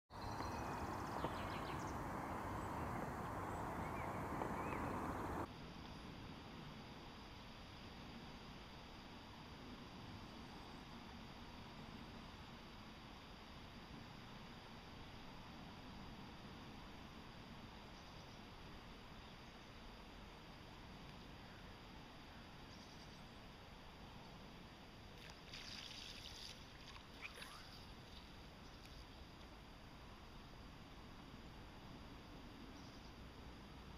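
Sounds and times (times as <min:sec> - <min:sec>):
quiet river water: 0:00.1 - 0:33.9
river water rushing: 0:00.6 - 0:05.5
faint high chirps: 0:27.1 - 0:29.0
faint squeak: 0:27.2 - 0:27.9.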